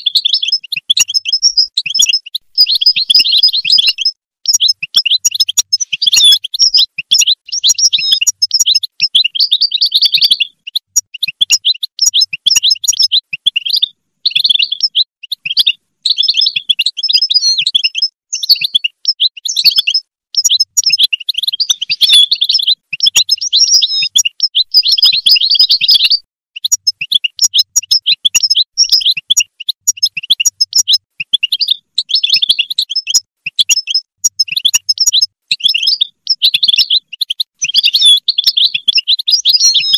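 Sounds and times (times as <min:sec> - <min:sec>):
finch twittering song: 0:00.0 - 0:39.9.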